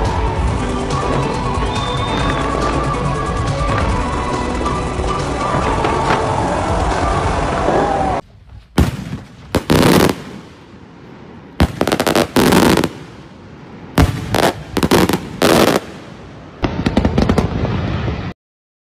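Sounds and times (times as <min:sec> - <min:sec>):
music: 0:00.0 - 0:08.2
fireworks bangs and crackling: 0:00.0 - 0:18.3.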